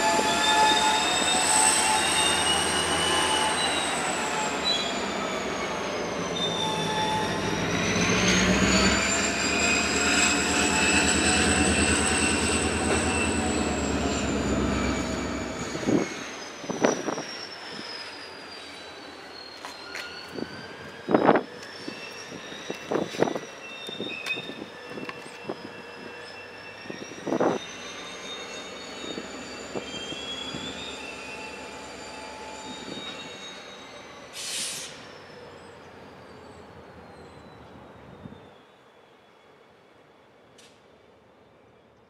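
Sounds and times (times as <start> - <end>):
wheel flanges squealing: 0.0 - 38.7
short hiss: 34.4 - 35.0.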